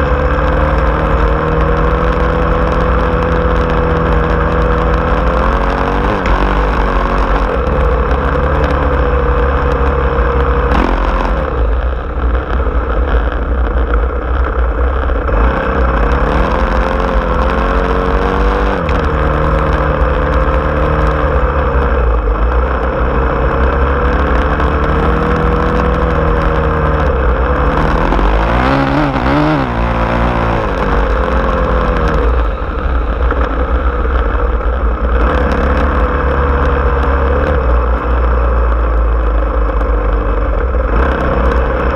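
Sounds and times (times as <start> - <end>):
off-road vehicle engine revving: 0.0 - 41.9.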